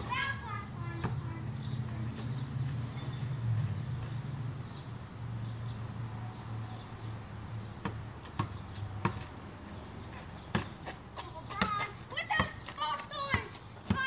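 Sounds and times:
basketball bouncing: 0:00.9 - 0:01.2, 0:07.8 - 0:09.8, 0:10.4 - 0:14.0.

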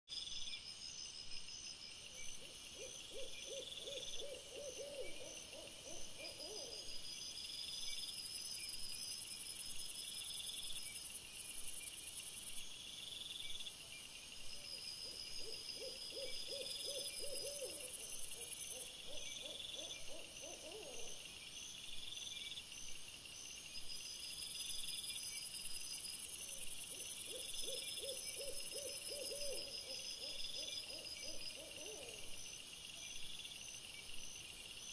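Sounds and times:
owl hooting: 0:02.8 - 0:06.8, 0:15.4 - 0:21.2, 0:27.2 - 0:32.3.

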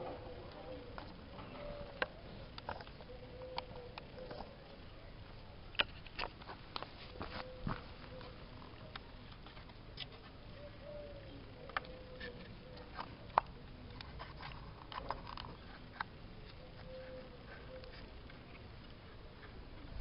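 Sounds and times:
faint steady tone: 0:00.0 - 0:20.0.

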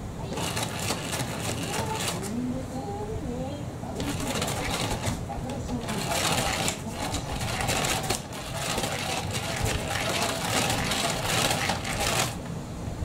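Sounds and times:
mechanical whirring: 0:00.0 - 0:02.4, 0:04.0 - 0:12.5
cloth rustling: 0:04.0 - 0:12.4.

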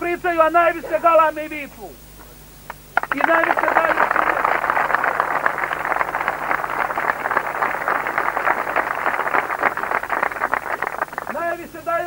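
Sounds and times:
crowd applauding: 0:02.9 - 0:11.6.

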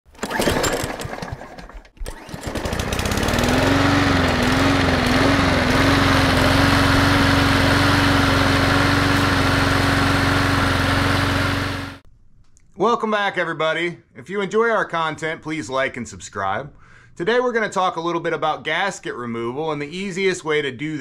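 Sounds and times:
lawn mower engine starting: 0:00.1 - 0:12.0.

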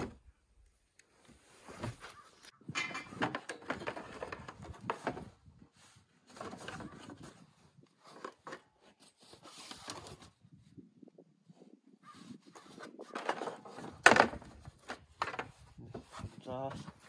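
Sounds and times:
plastic panel rubbing and scraping: 0:01.7 - 0:05.6, 0:06.2 - 0:10.4, 0:12.3 - 0:17.0.

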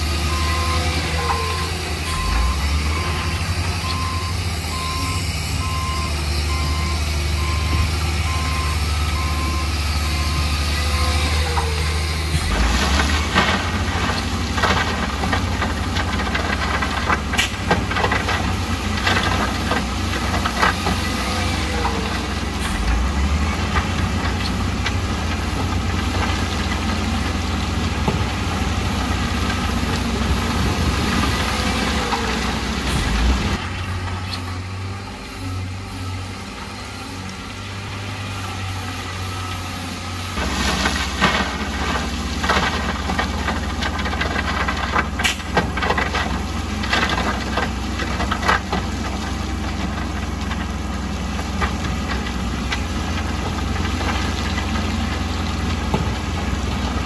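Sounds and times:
diesel engine rumbling: 0:00.0 - 0:57.0.

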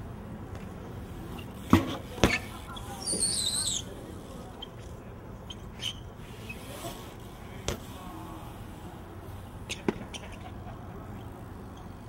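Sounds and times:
bike tyres rolling on concrete: 0:00.0 - 0:12.0.

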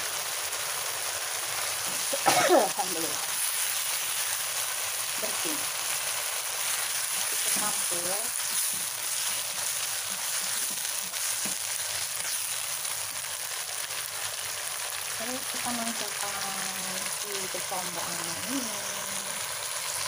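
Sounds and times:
food sizzling in a wok: 0:00.0 - 0:20.0
spatula scraping a pan: 0:06.6 - 0:12.6.

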